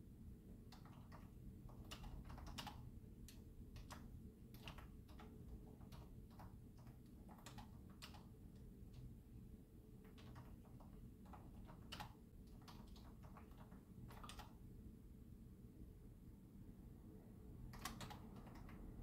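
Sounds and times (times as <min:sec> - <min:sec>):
low room hum: 0:00.0 - 0:19.0
keyboard key clicks: 0:17.7 - 0:18.8.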